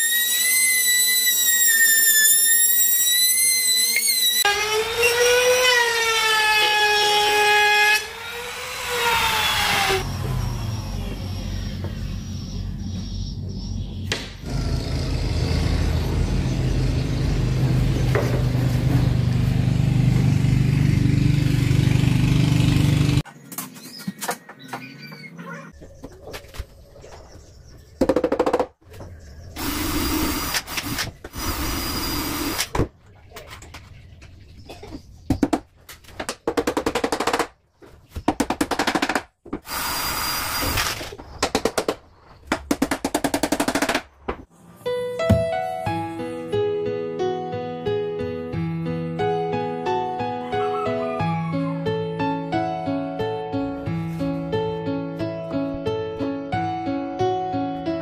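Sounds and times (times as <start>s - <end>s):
power tool motor humming: 39.7s - 41.0s.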